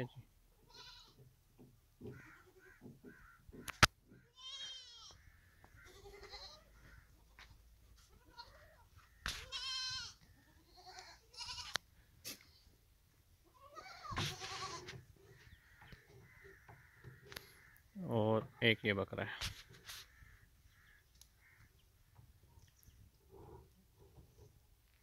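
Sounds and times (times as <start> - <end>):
goats bleating: 0.6 - 1.2, 4.2 - 7.4, 8.0 - 11.8, 13.5 - 15.0.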